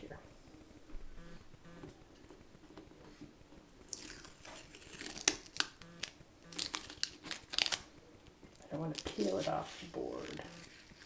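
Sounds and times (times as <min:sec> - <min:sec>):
tape peeling and crackling: 0:02.0 - 0:11.0.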